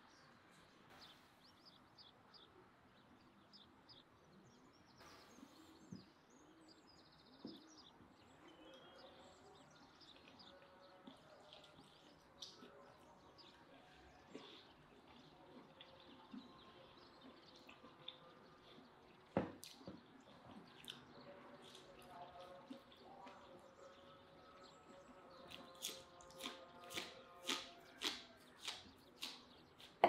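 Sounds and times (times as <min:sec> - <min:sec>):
small birds chirping: 0:00.0 - 0:30.0
eating noises: 0:08.4 - 0:30.0.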